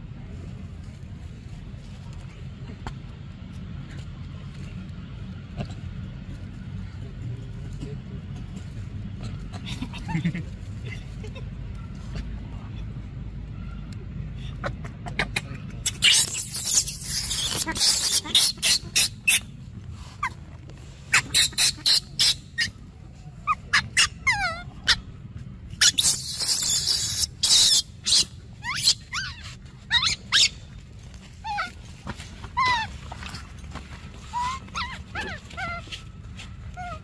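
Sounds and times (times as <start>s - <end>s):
baby monkey screaming: 15.1s - 19.5s, 21.1s - 22.8s, 23.4s - 25.1s, 25.8s - 30.6s, 31.4s - 31.8s, 32.6s - 32.9s, 34.2s - 36.0s.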